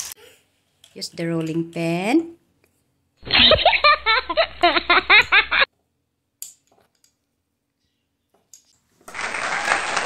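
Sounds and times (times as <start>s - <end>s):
loud applause-like noise: 9.1s - 10.0s.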